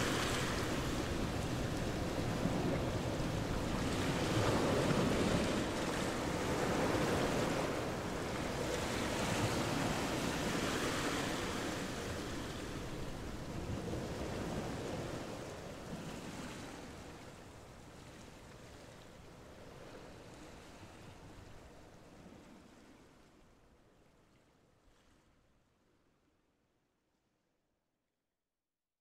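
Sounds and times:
surf washing onto beach: 0:00.0 - 0:17.8.

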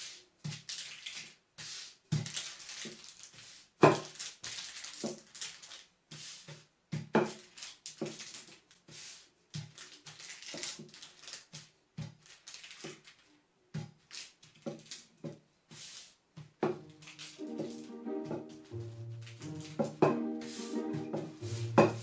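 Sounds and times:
rolling pin on parchment paper: 0:06.0 - 0:22.0
music: 0:16.8 - 0:22.0.

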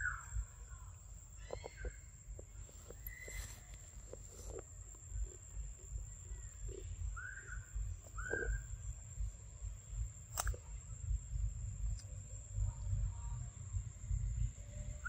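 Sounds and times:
steady low rumble: 0:00.0 - 0:15.0
sharp click: 0:10.3 - 0:10.6.

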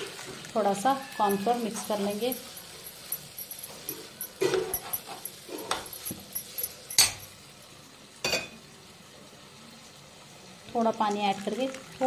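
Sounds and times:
bowls and utensils clinking: 0:00.9 - 0:07.6.

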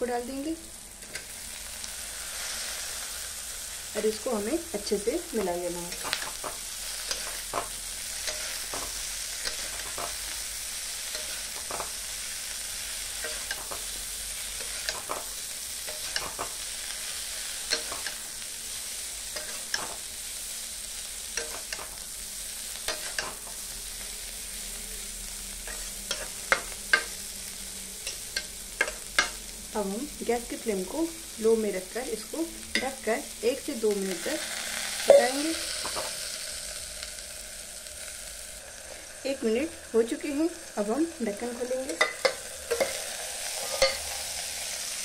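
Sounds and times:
food sizzling in a pan: 0:00.0 - 0:45.0
metal spatula scraping a pan: 0:05.9 - 0:20.2, 0:21.3 - 0:22.1, 0:22.7 - 0:23.7, 0:25.6 - 0:27.3, 0:41.5 - 0:44.8.

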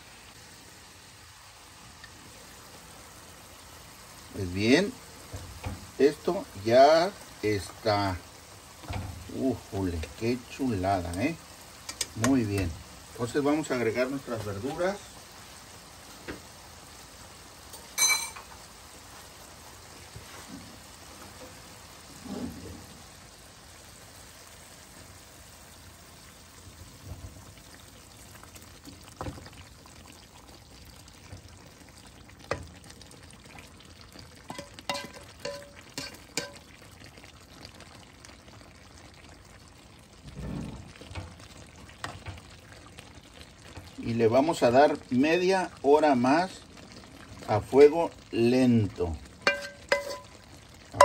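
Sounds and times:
stew simmering: 0:00.0 - 0:51.0
ringing clink of cookware: 0:17.9 - 0:18.5, 0:34.5 - 0:36.6, 0:49.4 - 0:50.4
spoon scraping and knocking pans: 0:34.5 - 0:36.6, 0:49.4 - 0:50.4.

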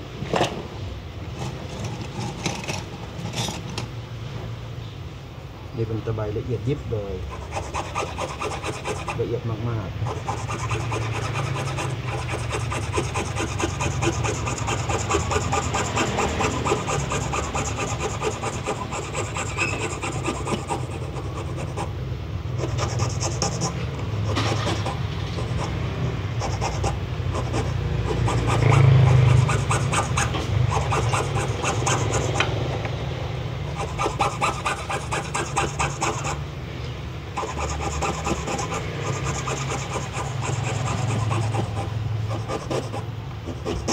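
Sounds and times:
hand file rasping on plastic: 0:07.3 - 0:09.3, 0:10.0 - 0:22.0, 0:22.6 - 0:32.5, 0:33.7 - 0:36.4, 0:37.4 - 0:43.9.

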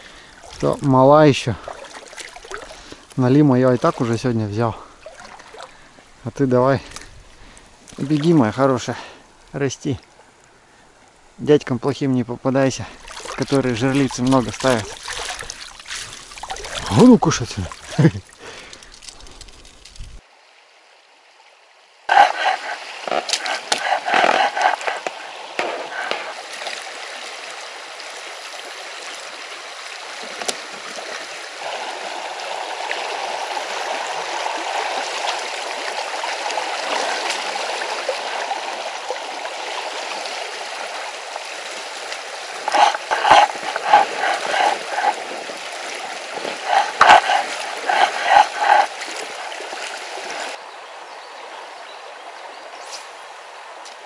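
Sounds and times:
water splashing: 0:00.0 - 0:06.1, 0:06.8 - 0:09.2, 0:12.8 - 0:20.2, 0:22.1 - 0:27.7, 0:30.0 - 0:50.6
river water rushing and gurgling: 0:00.0 - 0:11.4, 0:12.6 - 0:19.7, 0:22.1 - 0:53.8.

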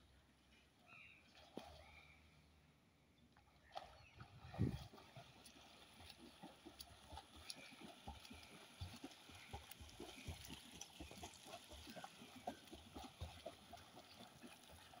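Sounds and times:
swimmer splashing: 0:03.6 - 0:15.0.

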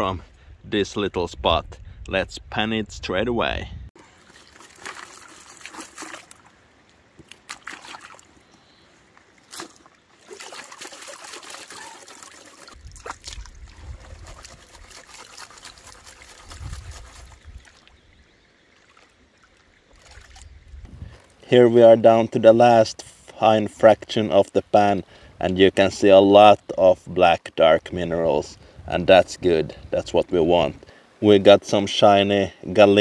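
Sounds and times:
water sloshing and trickling: 0:04.0 - 0:21.4.

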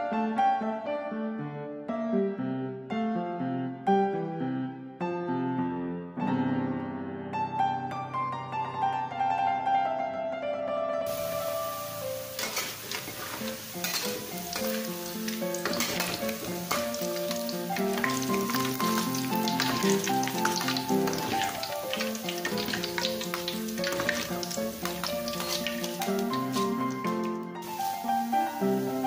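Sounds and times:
food sizzling in hot oil: 0:11.1 - 0:29.0
plucked string music: 0:11.2 - 0:29.0
metal skimmer stirring: 0:12.4 - 0:27.1.

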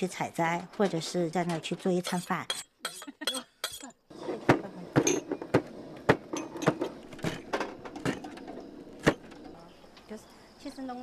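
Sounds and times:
knife sharpening against blade: 0:02.0 - 0:04.0.

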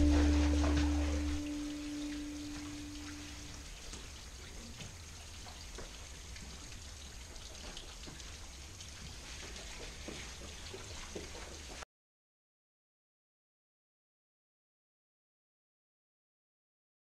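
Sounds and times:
steady low rumble: 0:00.0 - 0:03.6
water trickling and dripping: 0:00.0 - 0:11.8.

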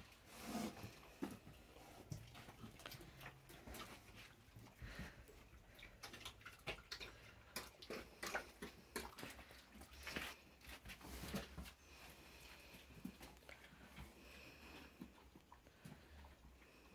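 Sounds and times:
pig snuffles: 0:00.3 - 0:04.4.

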